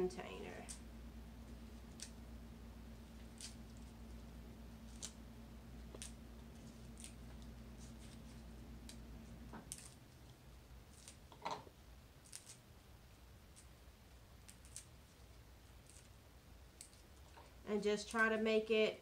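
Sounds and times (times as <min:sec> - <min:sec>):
low steady hum: 0:00.0 - 0:19.0
dry leaves crumbled by hand: 0:04.8 - 0:05.2, 0:05.8 - 0:10.1.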